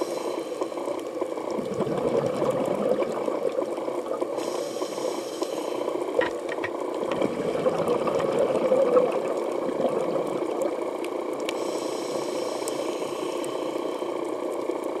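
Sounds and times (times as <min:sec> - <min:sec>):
muffled underwater rush: 0:01.2 - 0:11.0.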